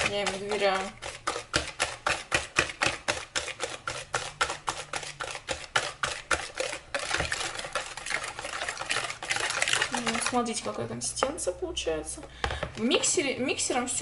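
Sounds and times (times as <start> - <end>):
whisk beating batter in bowl: 0.0 - 11.2.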